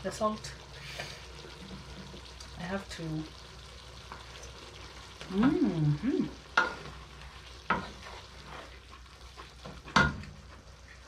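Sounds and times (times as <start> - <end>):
faint sizzle: 0.0 - 11.0
person humming: 5.3 - 6.4
spoon stirring in cooking pot: 6.5 - 10.1.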